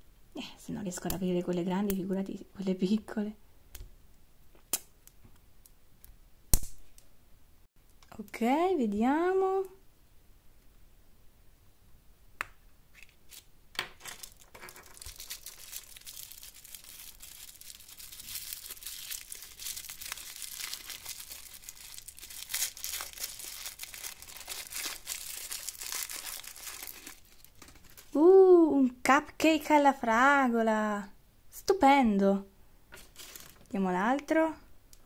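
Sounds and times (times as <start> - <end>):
plastic wrapper crinkling and tearing: 13.0 - 28.2, 33.0 - 33.8.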